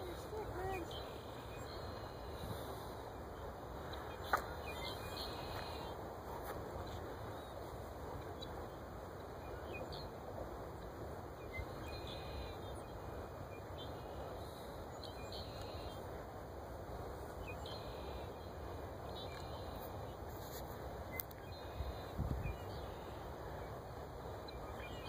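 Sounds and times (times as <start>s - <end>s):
faint bird chirps: 0.0s - 6.0s, 10.8s - 16.1s, 17.3s - 25.0s
outdoor background noise: 0.0s - 25.0s.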